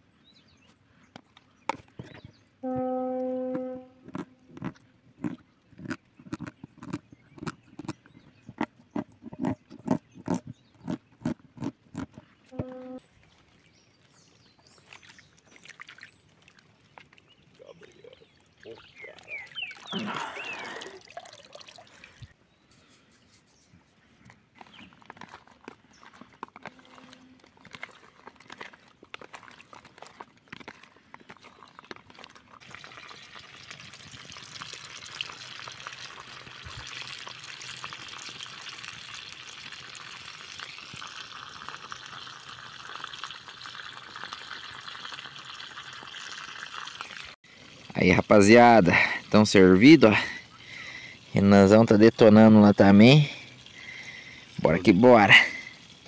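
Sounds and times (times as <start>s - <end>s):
water splashing: 12.6s - 22.4s, 26.1s - 56.0s
fish sizzling in frying oil: 32.6s - 48.0s.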